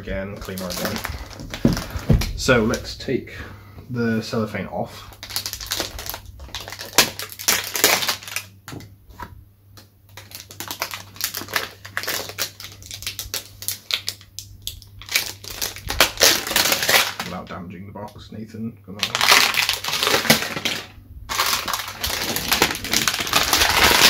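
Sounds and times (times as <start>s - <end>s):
cellophane wrap tearing and crinkling: 0.4s - 2.8s, 5.1s - 8.6s, 10.1s - 17.4s, 19.0s - 24.0s.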